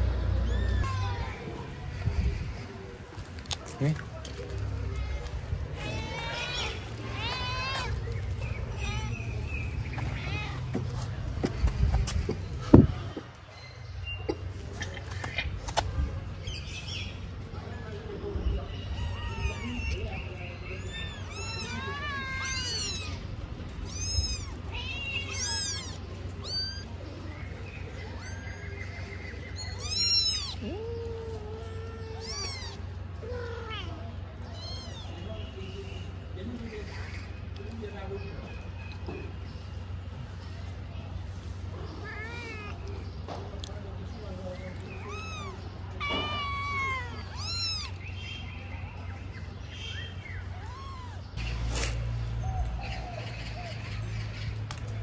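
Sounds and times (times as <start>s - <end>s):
kitten crying: 18.9s - 20.0s, 20.8s - 23.2s, 23.8s - 27.0s, 28.2s - 28.7s, 29.6s - 35.1s, 45.0s - 48.0s, 50.5s - 51.2s
cat meowing low: 23.9s - 26.9s, 29.7s - 32.8s, 45.0s - 47.9s, 50.5s - 51.2s.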